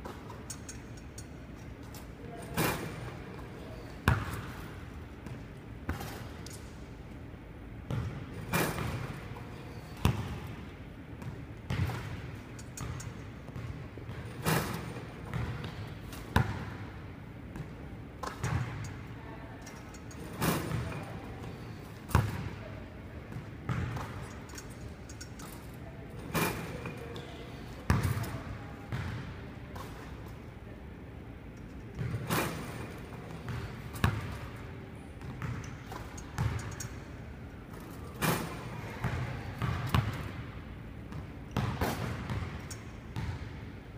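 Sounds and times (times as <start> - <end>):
ball hitting rim: 4.0 - 6.6, 7.9 - 9.2, 9.8 - 10.6, 11.2 - 16.8, 17.5 - 19.0, 20.2 - 21.1, 22.0 - 22.6, 23.4 - 24.6, 26.2 - 27.3, 27.9 - 28.3, 28.9 - 30.0, 32.0 - 34.5, 35.2 - 37.0, 37.7 - 40.5, 41.1 - 43.6
basketball bouncing on hardwood floor: 11.2 - 12.2, 15.3 - 16.7, 28.9 - 29.2, 35.2 - 35.7, 41.6 - 42.6, 43.2 - 43.5.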